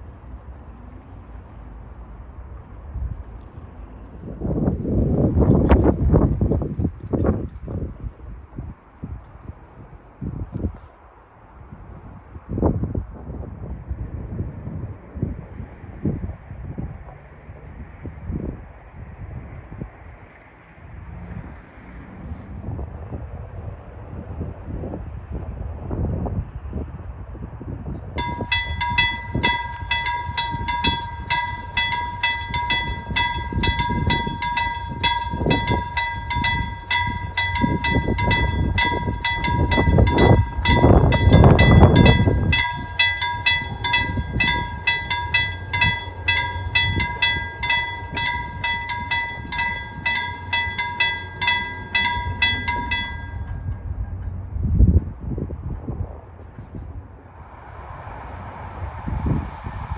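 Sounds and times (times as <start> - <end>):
level-crossing warning bell: 28.2 - 54.3
low rushing noise: 55.5 - 59.9.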